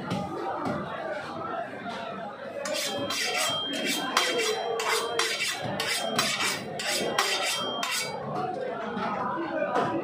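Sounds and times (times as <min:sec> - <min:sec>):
fish scraping against steel blade: 0:02.7 - 0:08.2.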